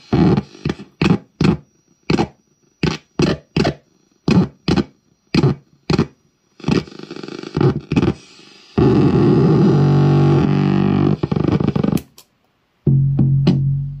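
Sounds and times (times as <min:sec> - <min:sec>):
buzzy glitch drone: 0:08.8 - 0:12.0
drum machine hits: 0:12.9 - 0:14.0.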